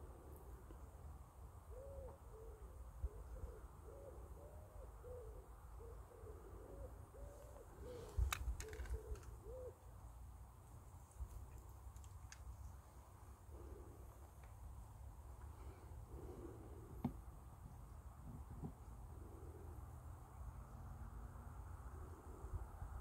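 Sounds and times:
soft hooting calls: 1.7 - 9.9.

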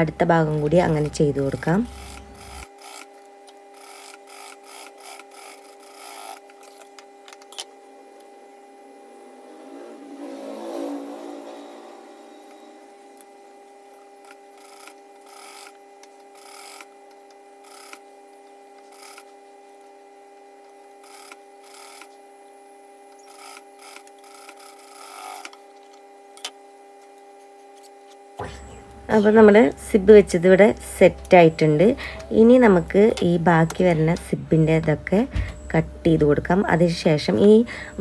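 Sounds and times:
faint steady hum: 0.0 - 38.0
sewing machine stitching: 0.5 - 6.8, 14.2 - 16.9, 18.8 - 19.3, 21.0 - 22.1.

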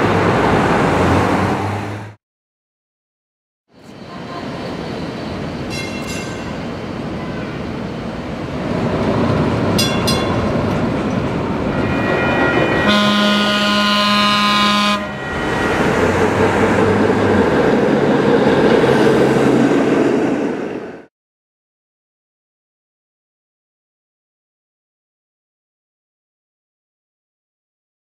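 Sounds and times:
low rumble of streetcar: 0.0 - 2.2, 3.7 - 21.1
streetcar horn blast: 11.7 - 16.0.

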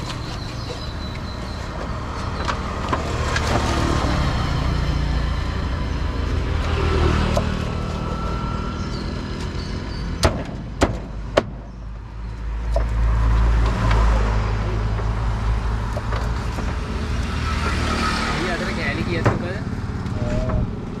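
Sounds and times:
vehicle engine rumble: 0.0 - 21.0
sharp knocks: 10.2 - 11.9.

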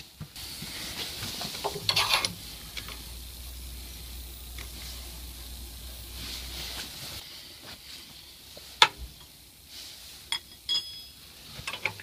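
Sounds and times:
metal tools clinking: 10.3 - 12.0
short ringing clinks: 10.4 - 11.3.

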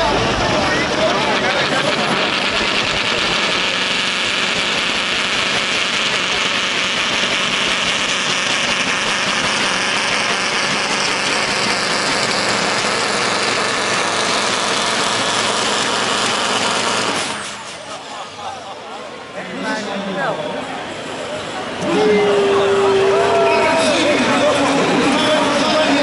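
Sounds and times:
truck engine under full load: 0.0 - 19.4.

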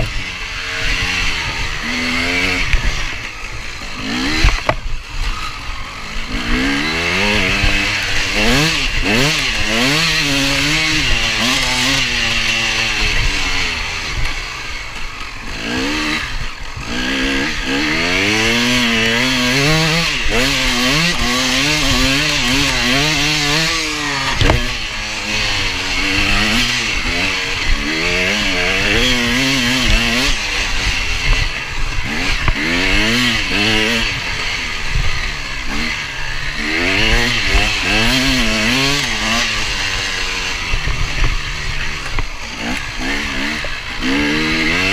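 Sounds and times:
motorcycle engine revving: 0.0 - 44.9
motorcycle knocking over bumps: 4.1 - 5.0, 17.6 - 27.8.

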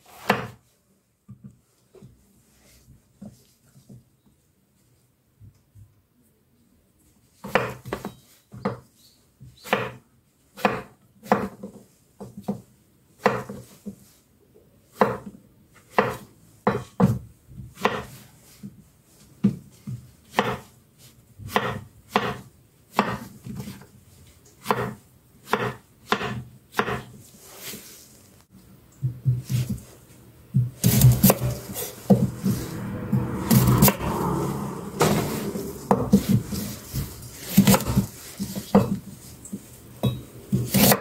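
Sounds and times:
knife cutting on wooden board: 20.3 - 20.7, 21.5 - 23.8, 24.6 - 27.1, 30.8 - 32.5, 35.2 - 39.0, 40.5 - 41.0.

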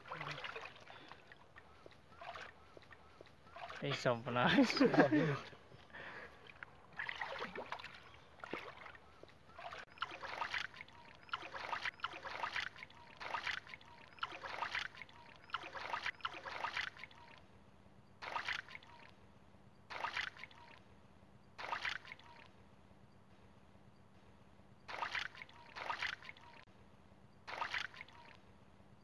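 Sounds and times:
hands splashing in muddy water: 0.0 - 4.0, 6.4 - 17.2.

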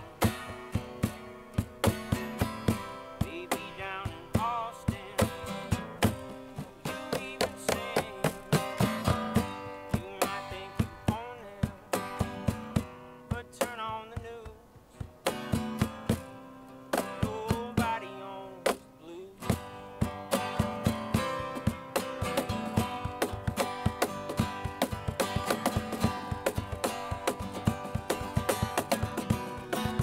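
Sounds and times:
cajon slapped in a beat: 0.0 - 30.0
strummed acoustic guitar: 0.0 - 30.0.

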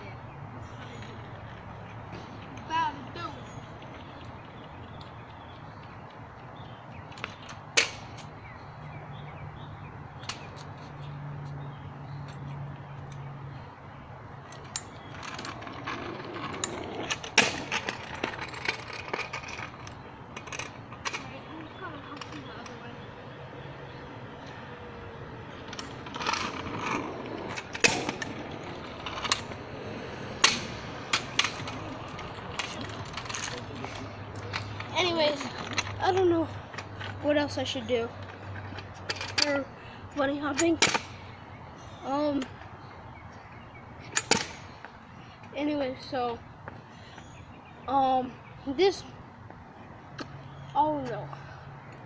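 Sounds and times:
scooter clacking on asphalt: 14.4 - 45.0
scooter metallic clacks: 25.6 - 39.6.

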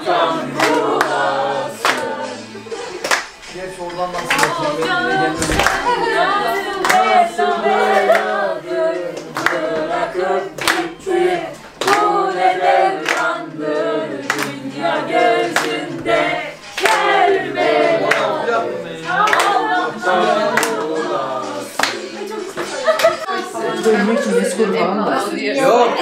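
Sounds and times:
group of people singing: 0.0 - 26.0
hand claps: 0.6 - 6.0, 6.8 - 7.2, 8.0 - 8.4, 9.1 - 10.0, 10.6 - 11.2, 11.8 - 18.4, 19.0 - 23.4.

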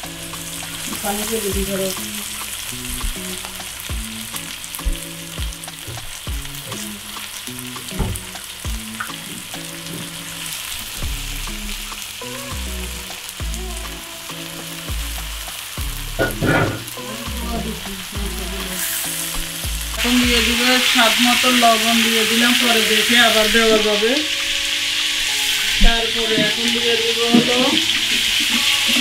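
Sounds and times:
beef sizzling in hot oil: 0.0 - 29.0.

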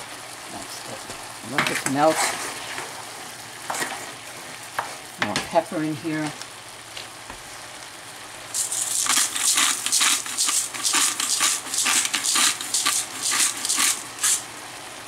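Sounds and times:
soft sizzle: 0.0 - 15.0
utensil scraping and clinking in pot: 8.6 - 14.4.

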